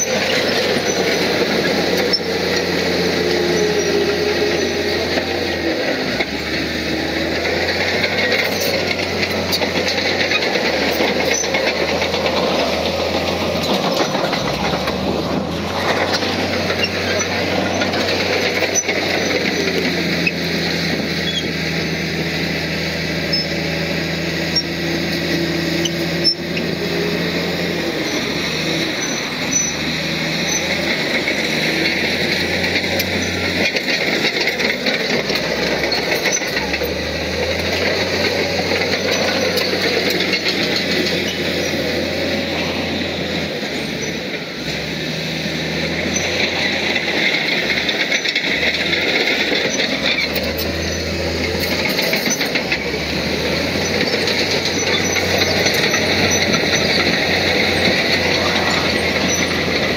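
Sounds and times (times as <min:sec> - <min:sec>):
diesel earthmoving machinery running: 0:00.0 - 0:59.9
rattling metallic clatter: 0:06.2 - 0:20.4.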